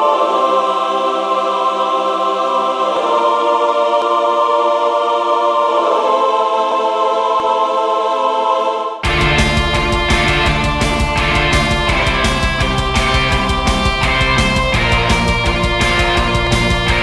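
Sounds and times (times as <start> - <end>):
slow held music chords: 9.0 - 17.0.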